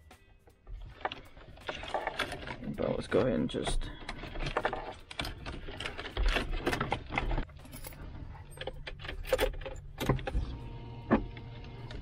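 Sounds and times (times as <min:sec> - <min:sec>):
car stereo rattling and clicking: 0:00.6 - 0:12.0.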